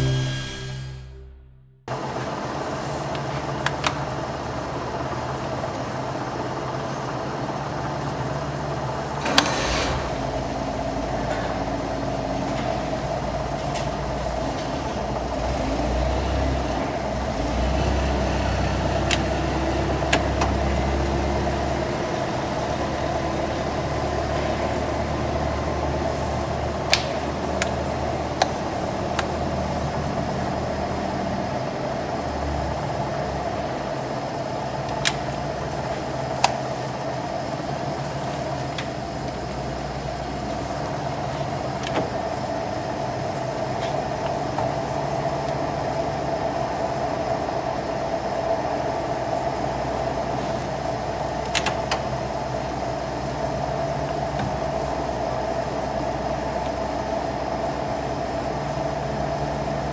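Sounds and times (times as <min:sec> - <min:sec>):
deep drone: 0:00.0 - 0:02.7
lathe gear hum: 0:01.9 - 0:59.9.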